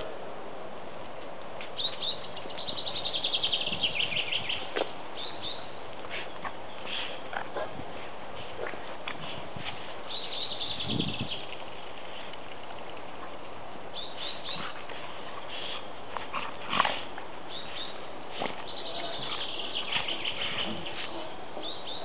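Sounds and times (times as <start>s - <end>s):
steady hiss: 0.0s - 22.0s
dogs play-fighting: 14.4s - 17.4s.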